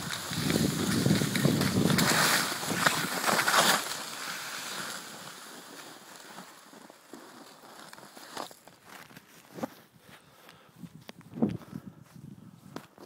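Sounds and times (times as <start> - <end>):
snow hissing under sliding rider: 0.1 - 6.4.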